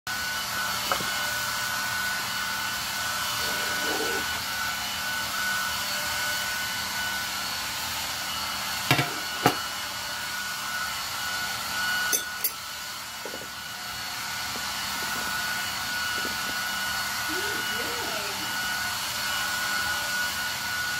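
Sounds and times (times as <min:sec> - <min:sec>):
blower machine hissing: 0:00.1 - 0:20.9
glass and fork clinking: 0:12.1 - 0:12.6.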